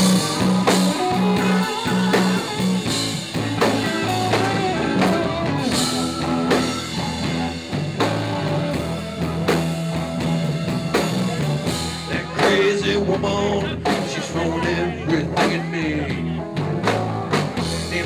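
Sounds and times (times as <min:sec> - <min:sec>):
drum kit: 0:00.0 - 0:18.0
electric guitar bending notes: 0:00.0 - 0:18.0
repeating bass line: 0:00.0 - 0:18.0.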